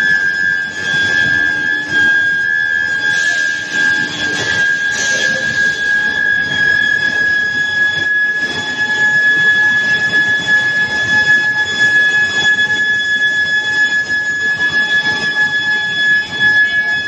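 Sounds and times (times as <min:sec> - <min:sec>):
induction furnace high-pitched whine: 0:00.0 - 0:17.0
rough machinery noise: 0:00.7 - 0:06.5.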